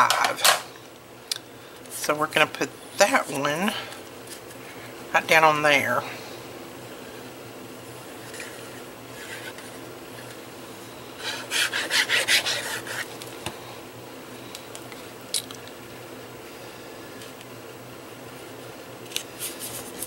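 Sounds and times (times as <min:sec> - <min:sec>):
glue bottle scratching on cardstock: 0:11.5 - 0:13.1.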